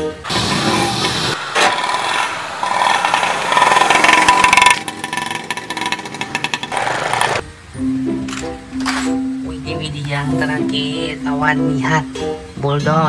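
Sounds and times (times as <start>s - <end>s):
auto-rickshaw engine revving: 0.2s - 7.4s.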